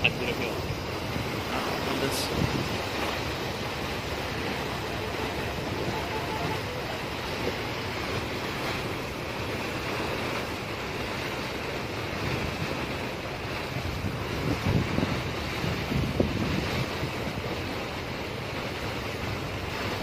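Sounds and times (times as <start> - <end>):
choppy sea: 0.0 - 20.0
wind on microphone: 0.0 - 20.0
wind rushing: 0.6 - 9.8.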